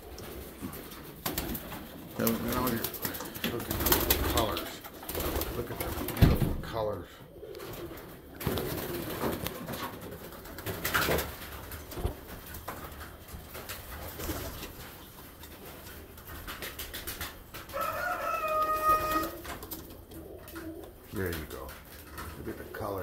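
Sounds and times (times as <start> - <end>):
pigeons cooing: 0.0 - 23.0
rustling: 7.5 - 23.0.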